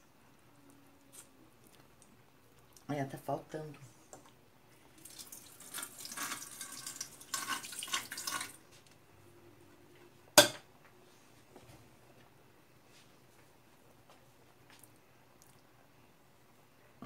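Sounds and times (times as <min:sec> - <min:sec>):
water running: 0:04.8 - 0:08.6.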